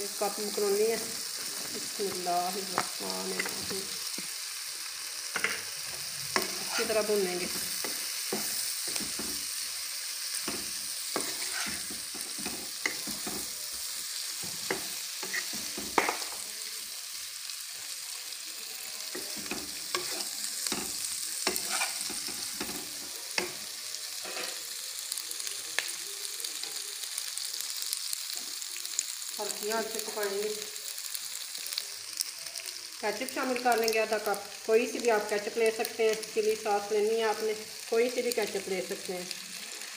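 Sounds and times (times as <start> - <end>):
food sizzling in a pan: 0.0 - 39.9
spatula scraping a pan: 5.4 - 9.6, 10.2 - 13.6, 14.4 - 16.2, 19.1 - 23.1, 24.2 - 24.6.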